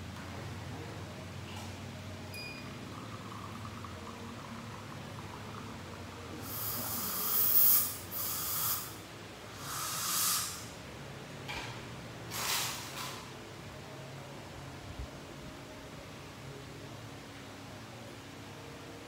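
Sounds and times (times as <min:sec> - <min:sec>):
hissing air bursts: 0:06.4 - 0:10.8.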